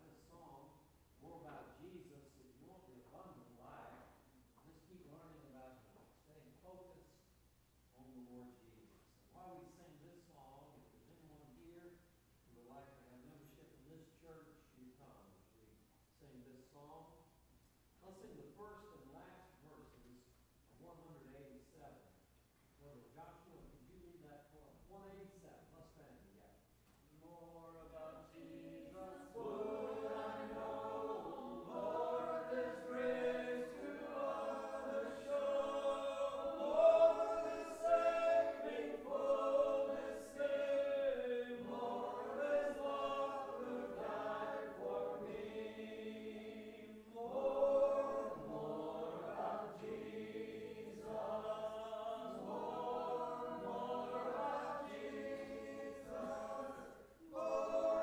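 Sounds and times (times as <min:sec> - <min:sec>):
congregation singing a hymn: 0:27.7 - 0:58.0.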